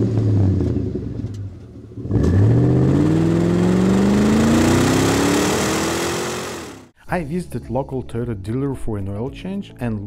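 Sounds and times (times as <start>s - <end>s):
car engine accelerating: 0.0s - 6.9s.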